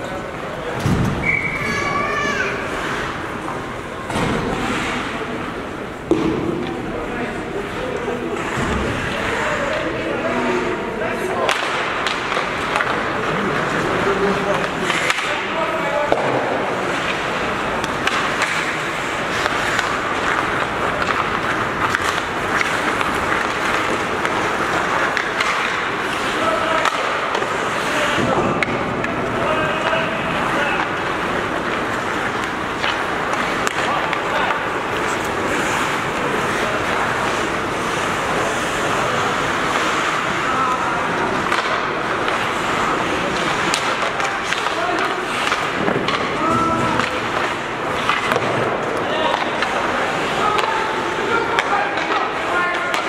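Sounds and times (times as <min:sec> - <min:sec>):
skate blades scraping ice: 0:01.2 - 0:06.1, 0:07.5 - 0:53.0
hockey sticks and puck clicking: 0:10.6 - 0:53.0.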